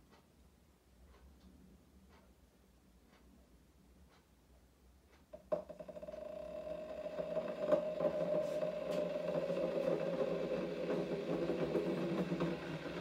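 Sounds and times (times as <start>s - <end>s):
coffee machine humming: 5.5s - 13.0s.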